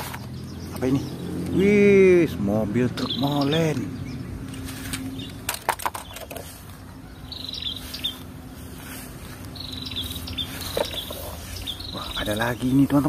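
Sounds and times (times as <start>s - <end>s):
plastic toys clattering into basket: 5.4s - 6.5s.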